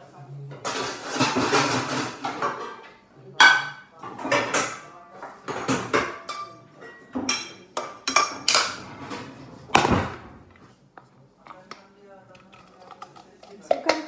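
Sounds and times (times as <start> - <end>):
pots and pans clanking: 0.6 - 4.8, 5.4 - 10.3.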